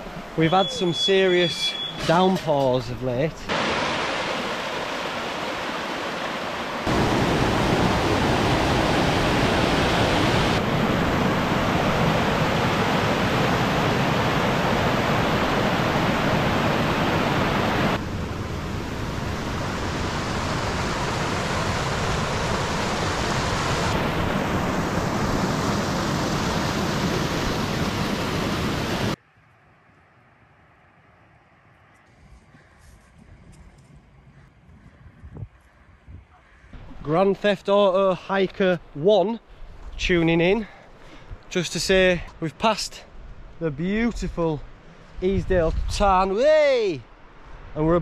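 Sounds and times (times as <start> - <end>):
waterfall rushing: 3.5 - 18.0, 18.6 - 29.2.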